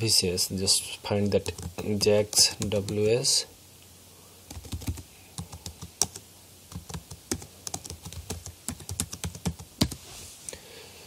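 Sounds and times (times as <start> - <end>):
typing on computer keyboard: 4.5 - 10.0.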